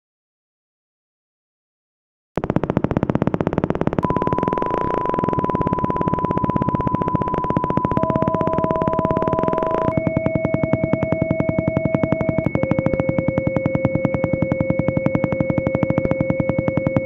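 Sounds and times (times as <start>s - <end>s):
steady pure tone: 2.8s - 17.0s
electronic pulsing music: 3.4s - 17.0s
lower synth tone: 4.0s - 17.0s.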